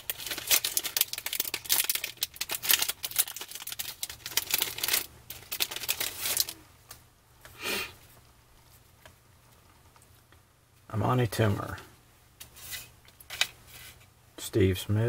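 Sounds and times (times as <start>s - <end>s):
foil wrapper crinkling and tearing: 0.0s - 6.6s.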